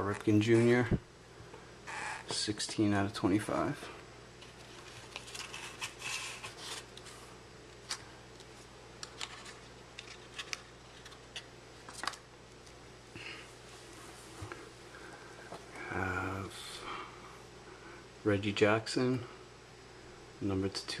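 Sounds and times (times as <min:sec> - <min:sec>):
card case rustling: 0:04.4 - 0:07.2, 0:09.0 - 0:12.2.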